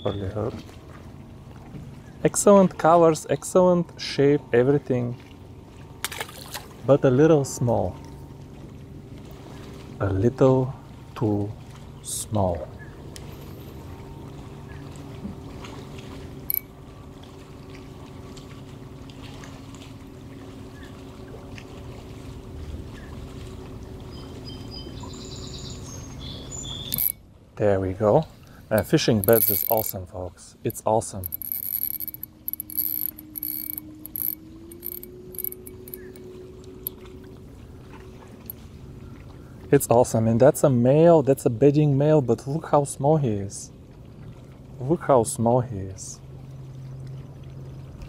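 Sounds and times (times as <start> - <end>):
boat motor humming: 0.0 - 39.8
water and air noise: 0.0 - 48.0
fishing reel cranking: 16.5 - 16.7, 26.9 - 27.2, 28.7 - 30.0, 30.7 - 36.2
steady low hum: 26.8 - 39.7
sharp click: 26.9 - 27.2, 28.8 - 29.9, 31.2 - 36.2.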